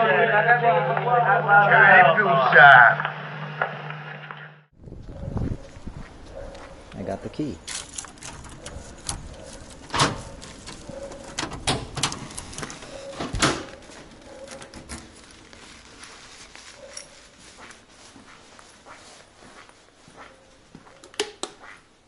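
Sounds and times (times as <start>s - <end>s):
heavy door opening and shutting: 7.6s - 15.2s.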